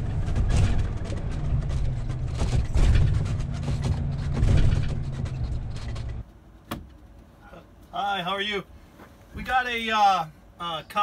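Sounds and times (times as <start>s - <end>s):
rattles: 0.0s - 6.2s
engine and road rumble: 0.0s - 11.0s.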